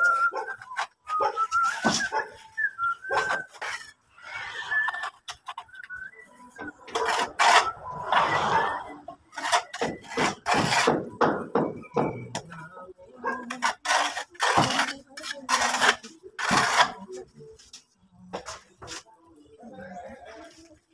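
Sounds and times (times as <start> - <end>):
hand tool scraping a wall: 9.3 - 11.2, 13.5 - 17.1.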